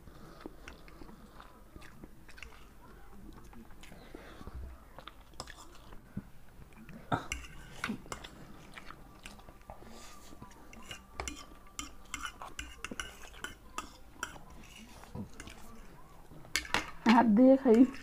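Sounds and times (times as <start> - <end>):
people chewing noodles: 0.0 - 16.6
forks scraping ceramic plates: 10.7 - 15.9, 17.6 - 18.0.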